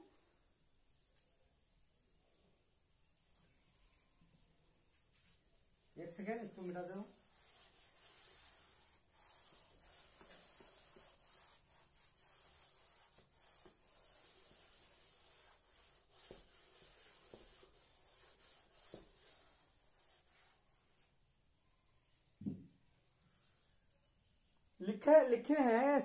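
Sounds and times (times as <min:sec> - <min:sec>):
duster rubbing on chalkboard: 0:04.9 - 0:21.4.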